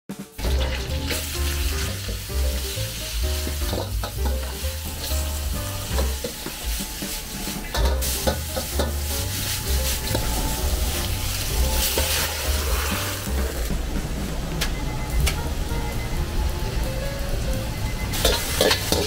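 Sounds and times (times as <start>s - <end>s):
vegetables sizzling in a wok: 0.1s - 14.3s, 15.5s - 19.0s
metal ladle scraping and clanking: 3.6s - 13.7s, 18.2s - 19.0s.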